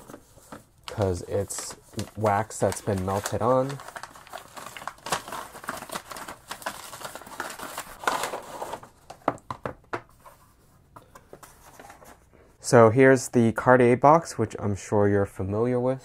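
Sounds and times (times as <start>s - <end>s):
wrapping paper ripping and crinkling: 0.9s - 9.0s.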